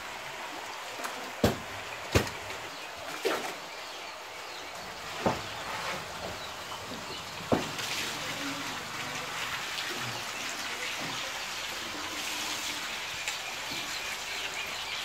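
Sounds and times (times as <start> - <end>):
wooden poles knocking on carcass: 1.4 - 2.5, 5.2 - 5.5, 6.2 - 7.8.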